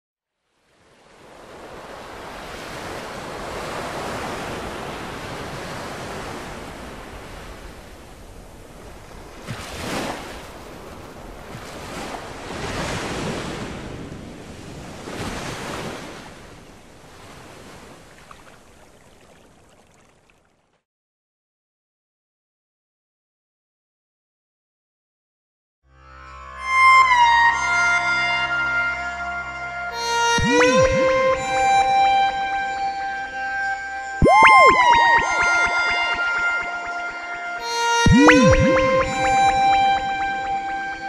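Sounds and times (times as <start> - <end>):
sea waves washing in: 0.7 - 20.3.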